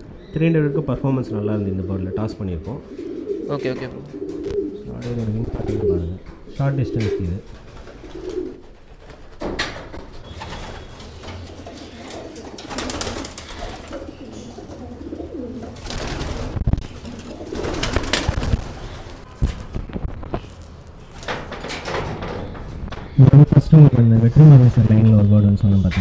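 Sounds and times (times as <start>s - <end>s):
pigeons cooing: 0.0s - 19.4s
wire-mesh cage door clattering: 21.0s - 23.2s.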